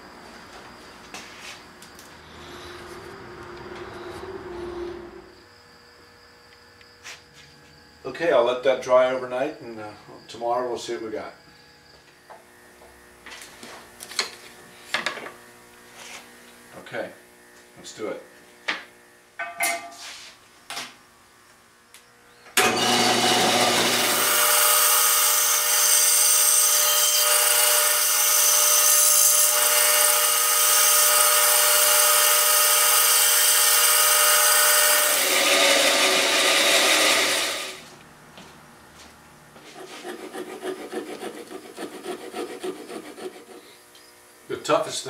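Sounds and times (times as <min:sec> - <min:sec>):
band saw cutting wood: 0:22.6 - 0:37.9, 0:39.6 - 0:43.8
hand file rasping wood: 0:39.6 - 0:43.8.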